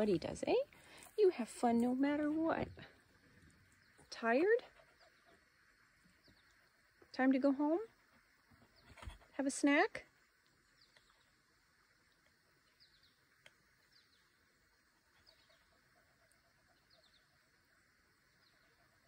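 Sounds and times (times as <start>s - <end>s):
faint tick: 13.4s - 13.6s.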